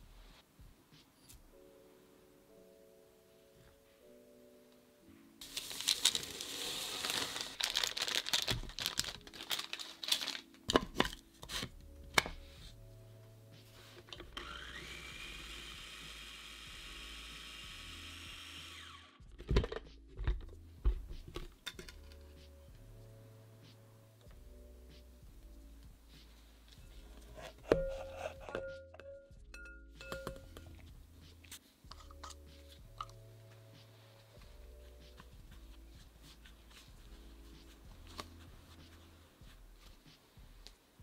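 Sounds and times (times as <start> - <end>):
food processor motor: 14.3 - 19.2.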